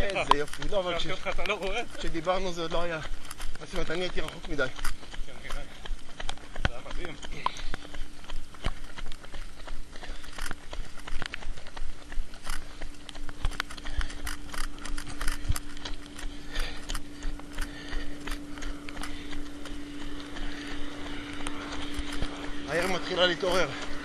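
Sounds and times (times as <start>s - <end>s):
handheld camera bumping: 0.0s - 0.8s, 13.4s - 15.9s
running footsteps on wet pavement: 0.0s - 24.0s
steady hum: 0.0s - 24.0s.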